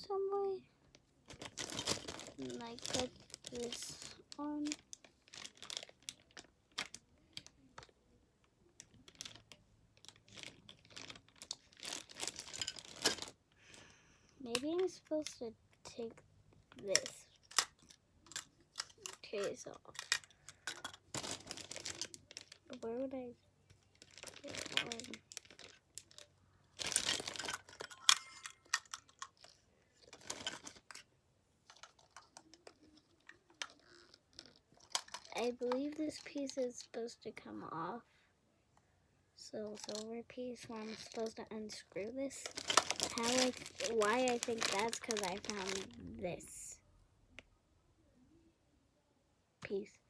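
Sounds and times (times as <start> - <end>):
plastic packaging crinkling: 1.3 - 7.9, 8.8 - 13.4, 16.8 - 23.2, 23.8 - 31.1, 31.7 - 36.7, 40.8 - 41.5, 42.1 - 46.4
plastic parts clicking: 16.7 - 22.4, 24.0 - 31.1.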